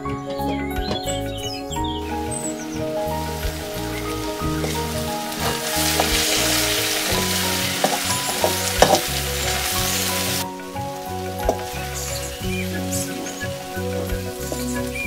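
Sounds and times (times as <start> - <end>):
background music: 0.0 - 15.0
plantain sizzling in a wok: 2.0 - 15.0
spoon scraping and knocking a pan: 4.5 - 10.4.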